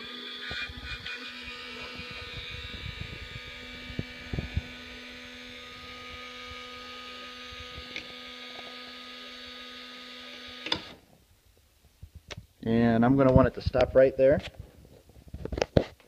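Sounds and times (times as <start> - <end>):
electric gear motor whirring: 0.0 - 11.0
motor cutting off with a click: 0.0 - 11.0.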